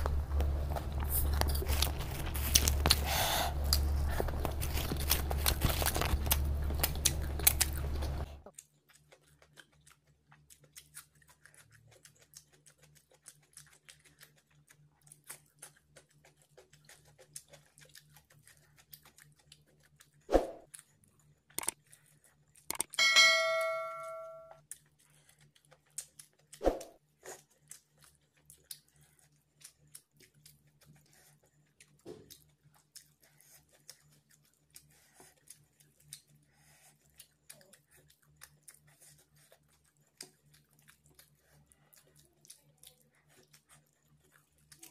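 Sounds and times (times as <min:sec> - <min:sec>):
man chewing and tearing chicken: 0:00.0 - 0:22.9, 0:24.5 - 0:44.9
mouth clicks and smacks: 0:21.5 - 0:21.8
ding: 0:22.9 - 0:24.5.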